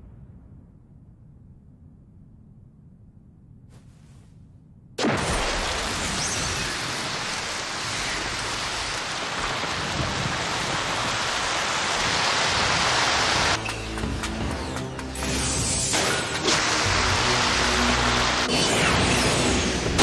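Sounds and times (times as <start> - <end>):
sand rushing and swirling: 5.4 - 13.6.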